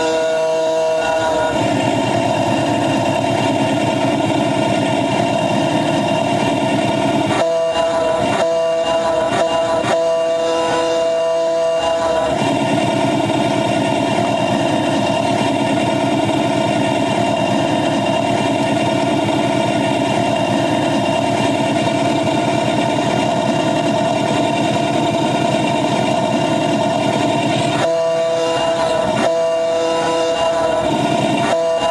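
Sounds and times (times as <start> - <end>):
miniature train locomotive running: 0.0 - 31.9.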